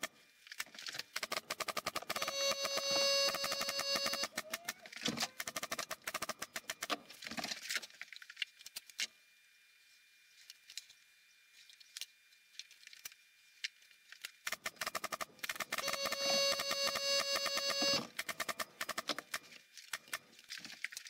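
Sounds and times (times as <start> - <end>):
nail gun firing: 1.1 - 2.2.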